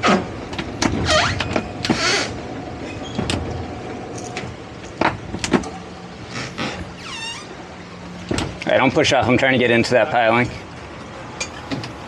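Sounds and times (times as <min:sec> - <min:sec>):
short squeaks: 0:01.0 - 0:03.3, 0:06.3 - 0:07.6
outboard motors idling: 0:03.4 - 0:12.0.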